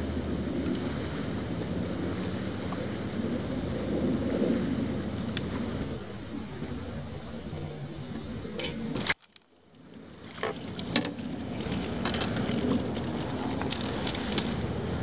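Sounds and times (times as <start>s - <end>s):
low rumble: 0.0s - 15.0s
steady rustle: 8.6s - 15.0s
fishing reel clicking: 10.4s - 14.6s.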